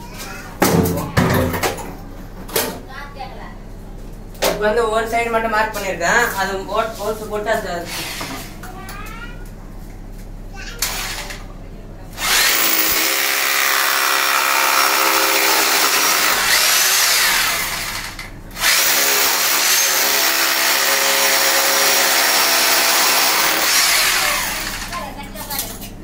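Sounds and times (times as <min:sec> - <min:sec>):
rotary hammer drilling into tile: 0:12.2 - 0:25.0.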